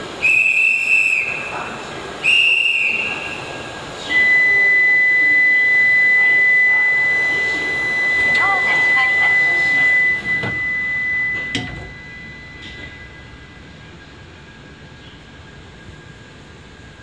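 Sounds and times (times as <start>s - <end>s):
whistle blasts: 0.2s - 1.6s, 2.2s - 13.7s
high electronic warning tone: 4.5s - 14.0s.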